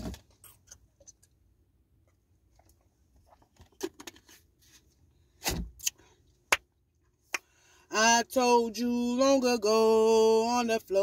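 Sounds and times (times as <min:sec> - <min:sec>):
hand clap: 0:07.3 - 0:07.5.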